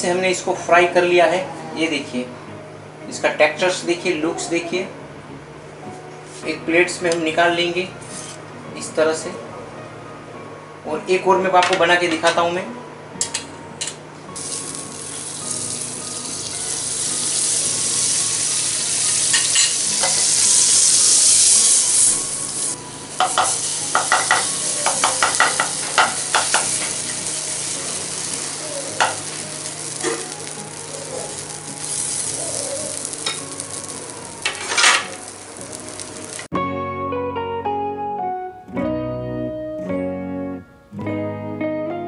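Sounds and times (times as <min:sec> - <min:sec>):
batter sizzling in frying pan: 0:14.4 - 0:36.5
ladle tapping and scraping pan: 0:23.2 - 0:27.1.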